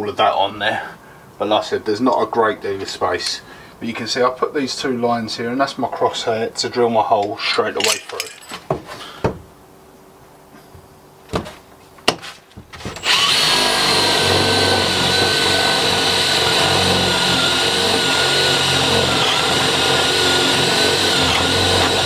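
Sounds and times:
cordless drill whining: 12.9s - 22.0s.

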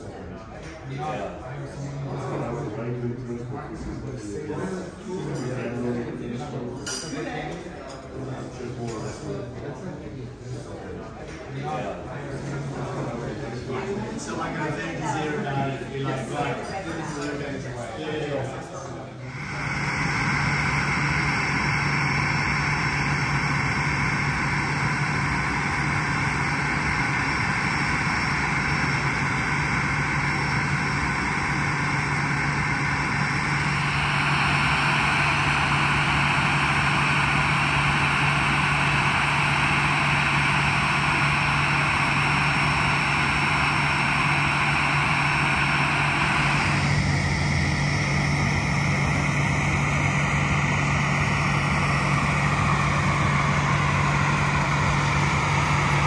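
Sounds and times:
aircraft and ground equipment roar: 19.2s - 56.0s.

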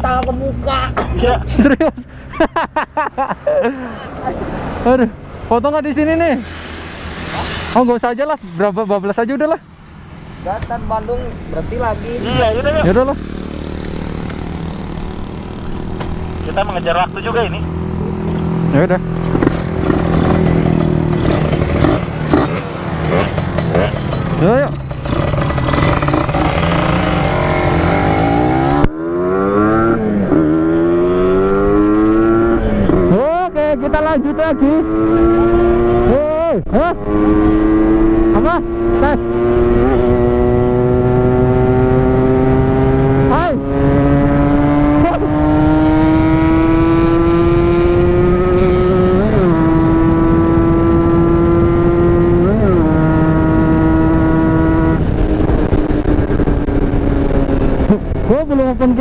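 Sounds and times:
motorcycle engine accelerating: 4.8s - 59.0s
motorcycle two-stroke engine: 19.2s - 30.7s.

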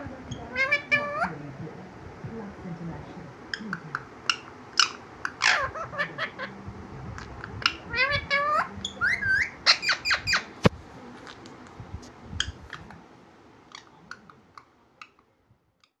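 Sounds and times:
parakeets calling and chirping: 0.0s - 1.4s, 3.4s - 10.7s.

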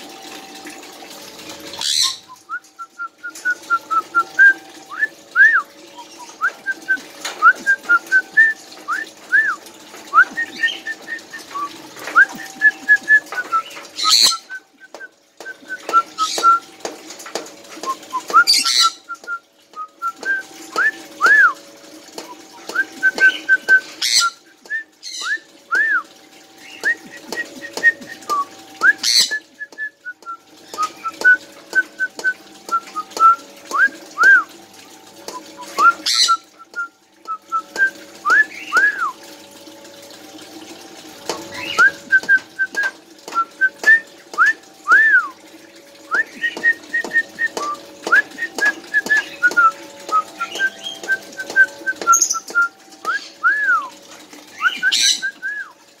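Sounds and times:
parrots whistling: 1.8s - 2.6s, 13.6s - 14.5s, 18.4s - 19.2s, 29.0s - 29.4s, 35.9s - 36.5s, 54.6s - 55.6s.

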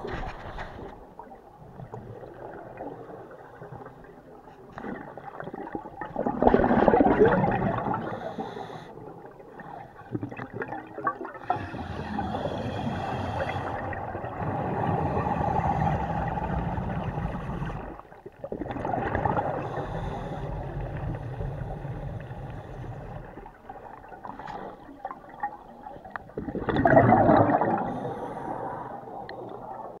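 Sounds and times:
air bubbling underwater: 5.0s - 8.3s, 10.2s - 19.8s, 25.0s - 28.6s.

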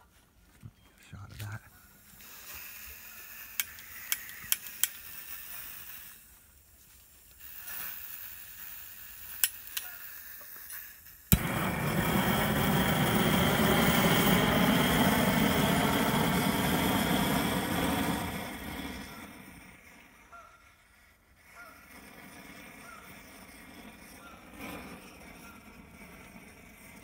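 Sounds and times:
torch flame rushing: 1.9s - 27.0s
torch igniter clicks: 3.5s - 6.2s, 8.6s - 16.4s.

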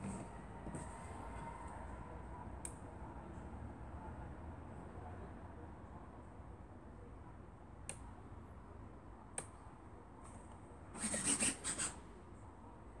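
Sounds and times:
rubbing and scratching: 11.0s - 12.0s.

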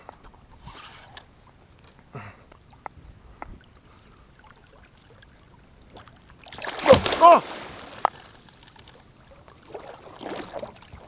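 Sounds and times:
water lapping around kayak: 0.3s - 11.0s.

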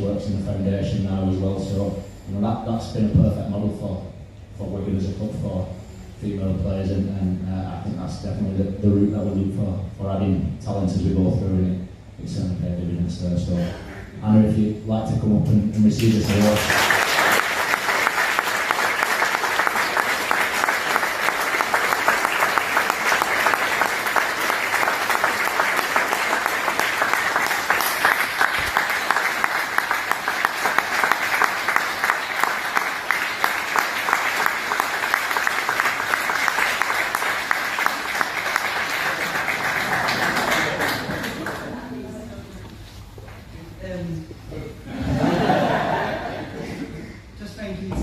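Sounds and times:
audience applauding: 16.0s - 42.0s.

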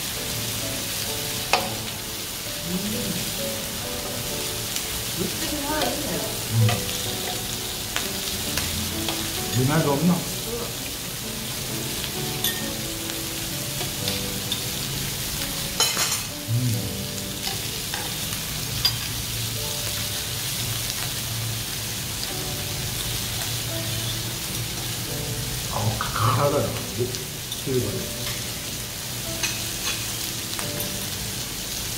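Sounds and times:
meat sizzling on a griddle: 0.0s - 31.9s
metal utensils clicking on pan: 1.5s - 1.8s, 15.8s - 16.3s, 17.4s - 19.2s, 29.4s - 31.0s.

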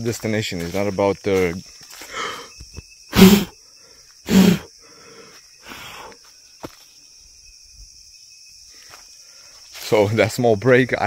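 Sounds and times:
man puffing breath: 2.0s - 3.6s, 4.3s - 6.2s.

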